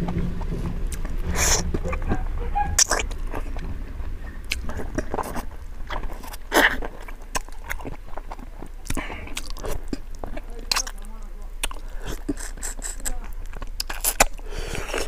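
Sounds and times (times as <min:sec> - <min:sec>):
man chewing food: 0:00.0 - 0:15.0.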